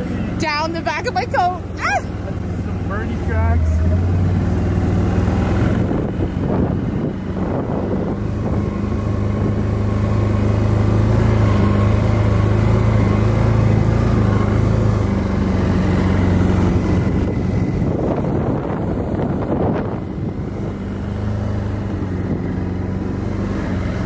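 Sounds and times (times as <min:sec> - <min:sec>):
off-road vehicle engine drone: 0:00.0 - 0:24.0.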